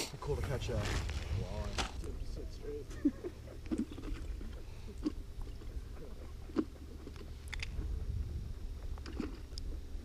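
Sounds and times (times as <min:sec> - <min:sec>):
wind rumbling on microphone: 0:00.3 - 0:02.9, 0:07.1 - 0:10.0.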